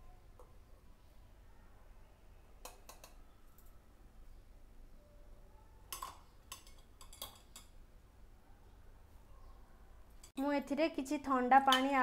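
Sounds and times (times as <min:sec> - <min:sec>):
metal bowl and strainer clinking: 0:05.9 - 0:07.7.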